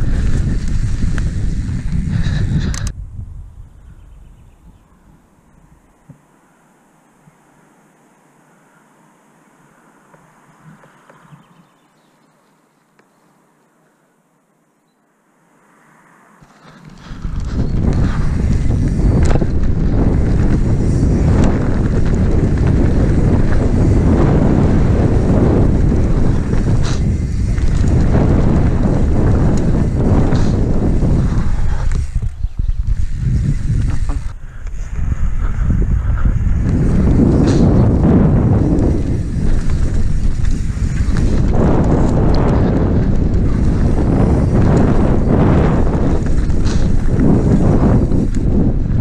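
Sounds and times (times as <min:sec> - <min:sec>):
bike clicks and rattles: 0:00.0 - 0:03.0, 0:16.4 - 0:49.0
wind buffeting microphone: 0:00.0 - 0:05.2, 0:16.6 - 0:49.0
bike tyre noise: 0:00.0 - 0:49.0.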